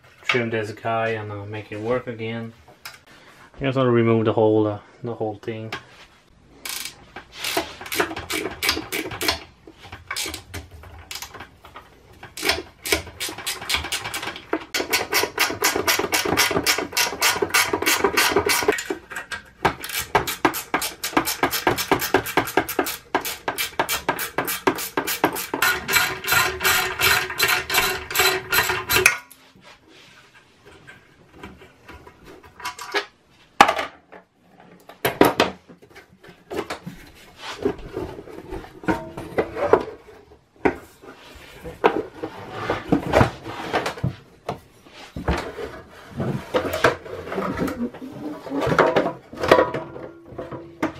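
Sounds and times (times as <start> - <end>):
metallic clicking of hand tools: 12.2 - 29.4.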